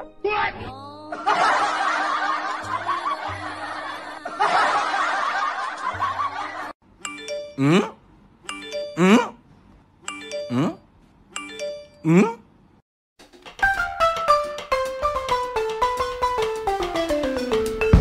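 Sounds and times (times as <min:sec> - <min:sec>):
laughter: 0:01.1 - 0:06.8
chiming notes: 0:07.0 - 0:07.9, 0:08.5 - 0:09.2, 0:10.1 - 0:10.8, 0:11.4 - 0:12.1
music: 0:13.2 - 0:18.0.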